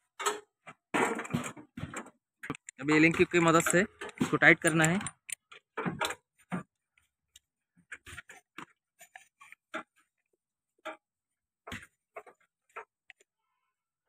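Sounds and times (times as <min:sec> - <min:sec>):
metallic clicks and taps: 0:02.4 - 0:06.2.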